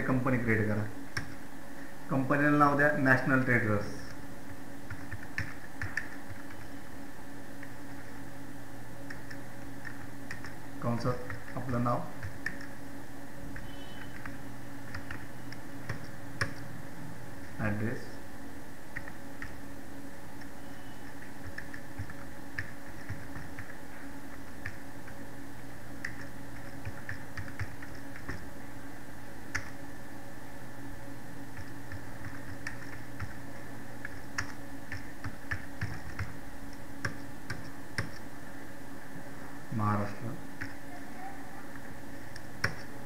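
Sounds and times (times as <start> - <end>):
steady background hum: 0.0 - 43.0
keyboard typing clicks: 4.9 - 6.7, 9.0 - 10.6, 13.5 - 16.7, 20.4 - 23.8, 26.0 - 28.5, 29.5 - 29.8, 31.5 - 33.4, 34.0 - 38.3, 42.3 - 42.9.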